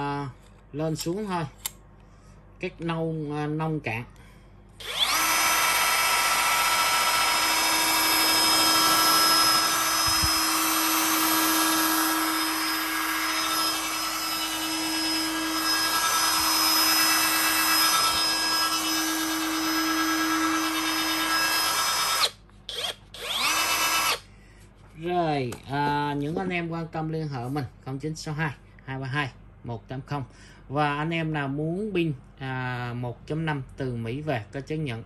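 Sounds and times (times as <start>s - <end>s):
cut-off tool motor whine: 4.8s - 24.2s.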